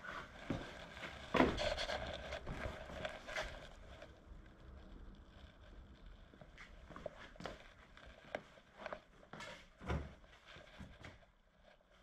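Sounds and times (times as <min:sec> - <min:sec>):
faint footsteps: 0:00.0 - 0:04.1.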